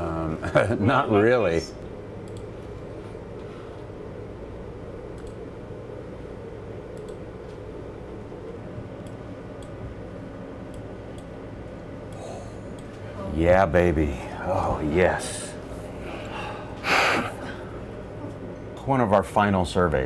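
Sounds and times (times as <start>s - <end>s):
low machinery hum: 0.0s - 20.0s
faint computer control clicks: 2.2s - 2.8s, 5.1s - 5.4s, 6.9s - 7.7s.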